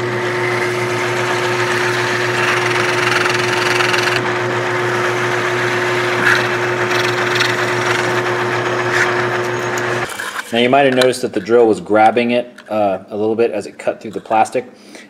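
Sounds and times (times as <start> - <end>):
drill press drilling plastic: 1.0 - 4.2, 5.6 - 8.5.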